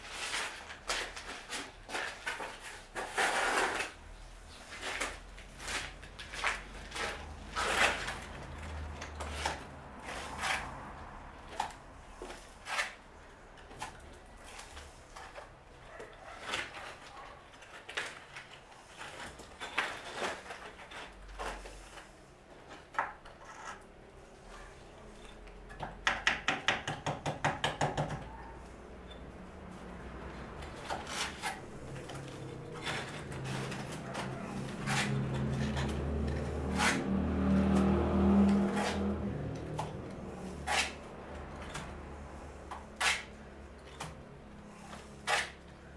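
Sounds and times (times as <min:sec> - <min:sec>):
trowel scraping mortar board: 0:00.1 - 0:04.0, 0:32.8 - 0:37.1, 0:38.5 - 0:39.1, 0:40.5 - 0:41.0, 0:43.0 - 0:43.3.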